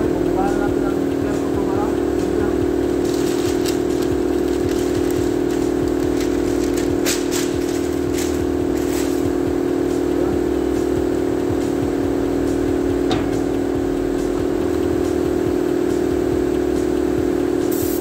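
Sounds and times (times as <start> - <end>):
mechanical drone: 0.0 - 18.0
masking paper crackling: 3.0 - 9.3.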